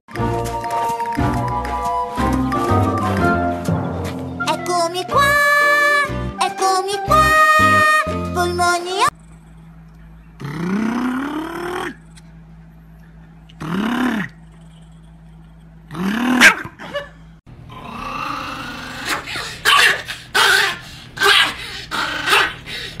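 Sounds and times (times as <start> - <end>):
dog grumbling: 10.4 - 12.1, 13.6 - 14.6, 17.7 - 19.6, 21.9 - 22.8.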